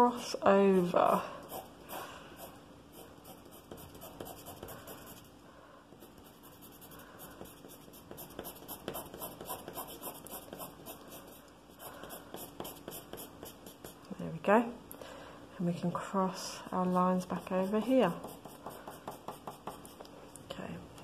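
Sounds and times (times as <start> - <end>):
pencil scratching on paper: 1.4 - 5.3, 5.9 - 14.1, 16.7 - 20.1.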